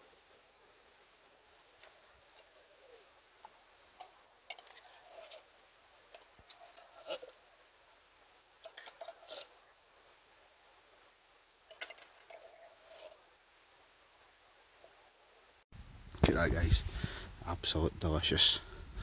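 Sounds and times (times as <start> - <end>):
metal spoon scraping in tin can: 4.0 - 5.5, 6.2 - 7.4, 8.6 - 9.5, 11.7 - 13.2.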